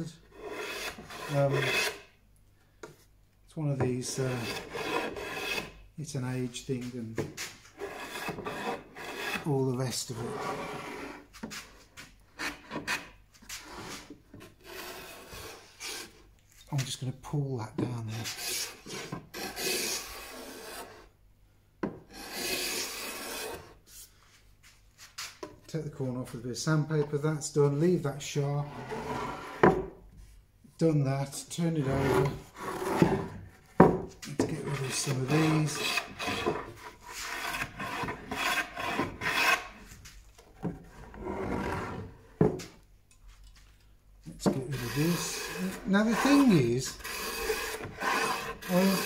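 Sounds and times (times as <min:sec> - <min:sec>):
sandpaper rubbing on wood: 0:34.6 - 0:36.4, 0:44.7 - 0:49.0.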